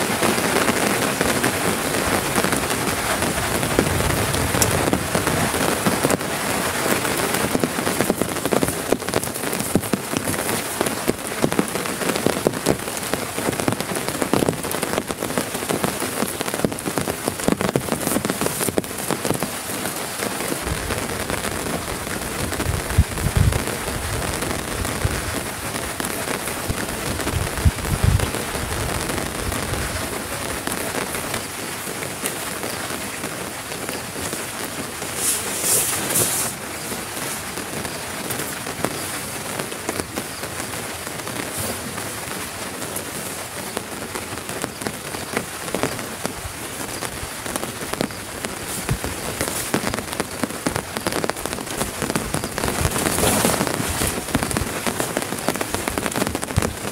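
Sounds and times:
heavy rain on a tarp: 0.0s - 56.9s
low rumbles: 2.0s - 6.3s, 20.6s - 30.5s.

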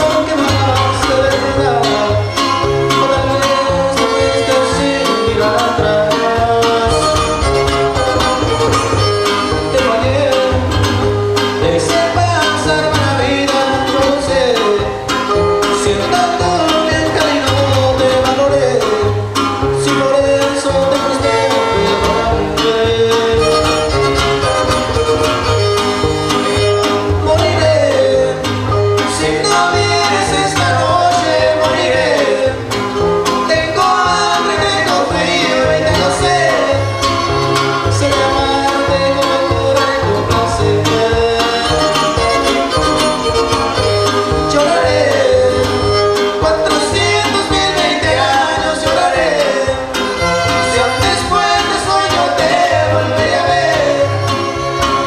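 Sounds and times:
man singing: 0.0s - 25.6s, 26.3s - 55.0s
bass line: 0.0s - 55.0s
guitars strummed: 0.0s - 55.0s
violin melody: 6.8s - 10.1s, 23.3s - 27.4s, 36.4s - 38.0s, 41.5s - 46.9s, 49.8s - 53.2s, 53.8s - 55.0s
bowed violin melody: 41.6s - 44.5s, 50.0s - 51.6s, 54.0s - 55.0s.

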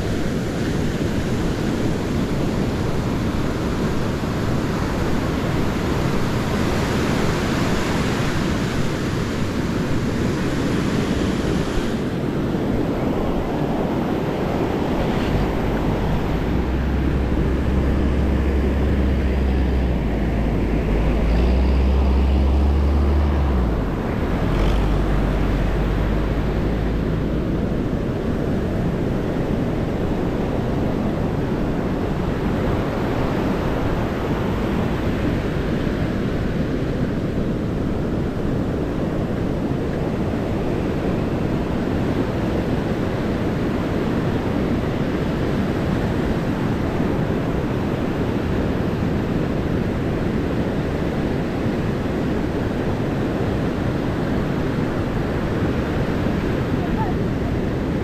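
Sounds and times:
wind buffeting microphone: 0.0s - 58.0s
surf breaking on beach: 0.1s - 58.0s
deep rumble: 12.9s - 36.5s.

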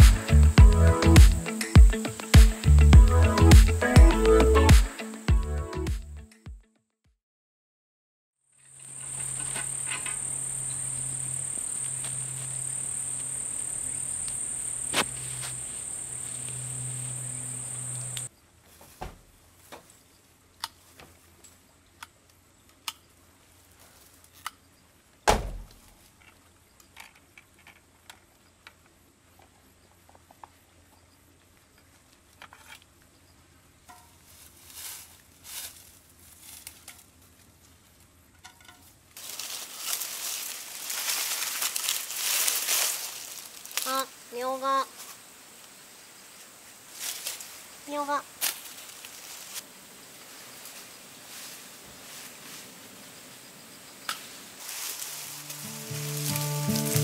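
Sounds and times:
insects chirring: 0.0s - 5.9s, 8.5s - 18.4s, 25.5s - 57.0s
loud thump: 25.3s - 25.8s.

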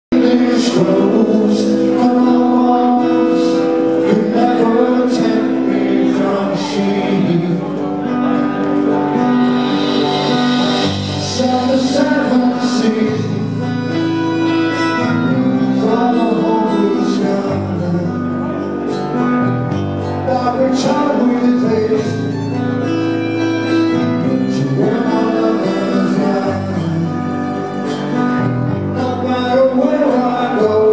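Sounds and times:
strummed acoustic guitar: 0.1s - 30.9s
melody of long held notes: 0.2s - 30.8s
electric bass: 7.1s - 16.0s.

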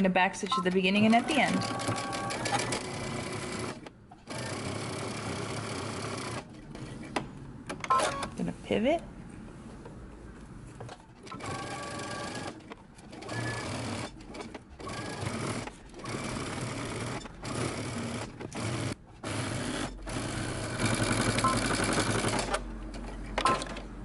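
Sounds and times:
electric sewing machine stitching: 1.1s - 6.5s.

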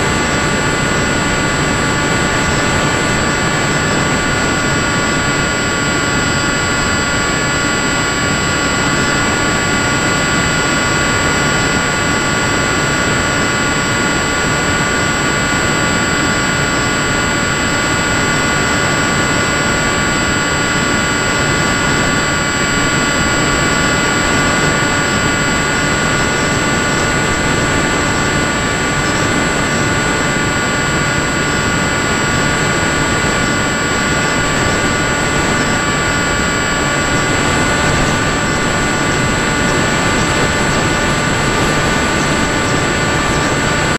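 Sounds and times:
electric motor whine: 0.0s - 43.9s.

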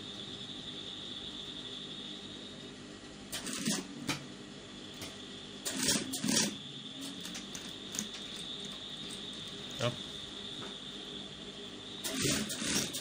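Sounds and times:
sewing machine motor whining: 3.4s - 3.9s, 5.6s - 10.0s, 12.0s - 13.0s
sewing machine stitching: 3.4s - 3.9s, 5.7s - 8.1s, 12.0s - 13.0s.

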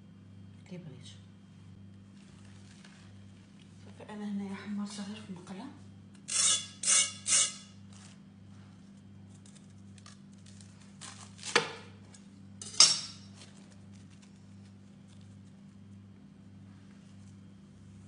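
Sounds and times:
knife crunching through toasted bread: 8.9s - 12.3s, 13.2s - 16.1s.

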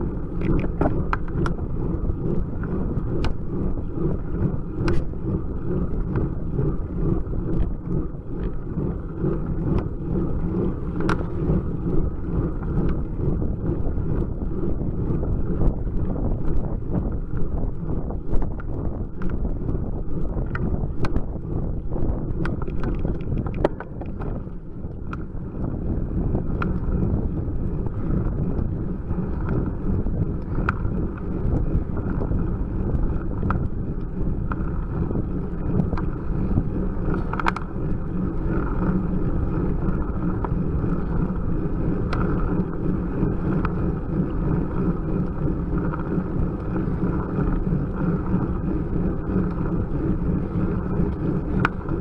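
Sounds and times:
bicycle rumble: 0.0s - 52.0s
wind buffeting microphone: 0.0s - 52.0s
sharp clicks and ticks: 3.1s - 3.4s, 10.9s - 11.3s, 18.4s - 21.3s, 22.3s - 24.4s, 37.1s - 37.7s.

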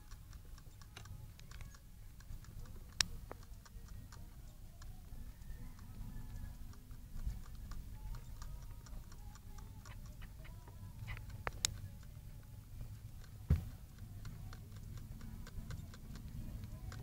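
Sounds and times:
hamster licking water bottle tube: 0.0s - 17.0s
low thump: 13.5s - 13.8s.

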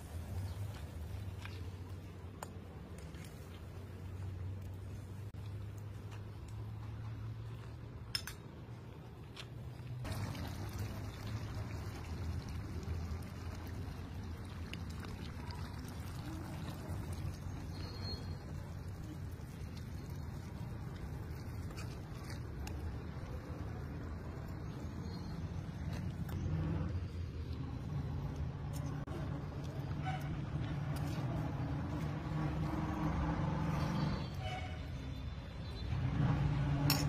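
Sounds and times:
liquid trickling and splashing: 10.0s - 26.2s.

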